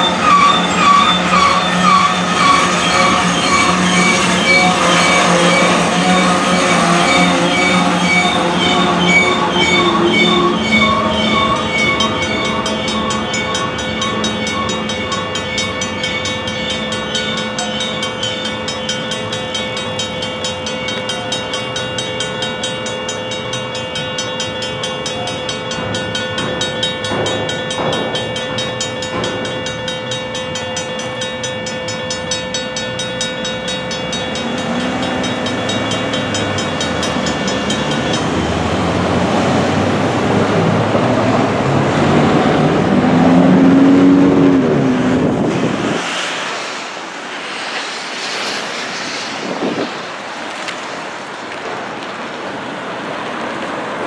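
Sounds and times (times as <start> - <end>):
car traffic: 0.0 - 23.4, 31.8 - 54.0
crossing bell ringing: 0.0 - 45.4
freight cars rolling over rails: 0.0 - 54.0.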